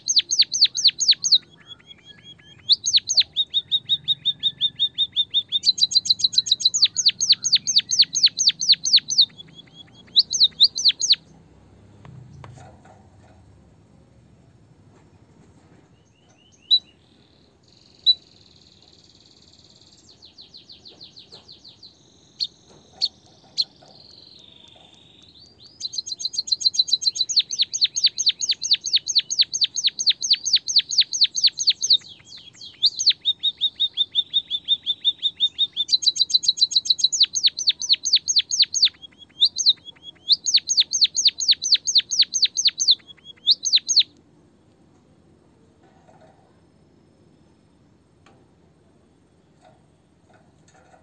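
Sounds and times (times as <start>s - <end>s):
songbird chirping: 0.0s - 51.0s.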